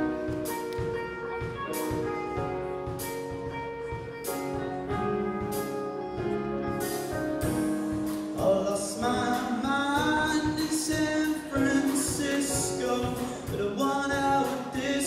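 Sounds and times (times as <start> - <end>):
drum kit with cymbals: 0.0 - 15.0
electric guitar: 0.0 - 15.0
piano: 0.0 - 15.0
person singing: 8.2 - 15.0.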